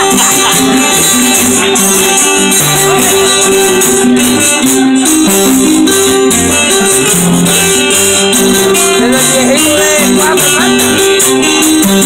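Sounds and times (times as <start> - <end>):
plucked string band melody: 0.0 - 12.0
steady percussion rhythm: 0.0 - 12.0.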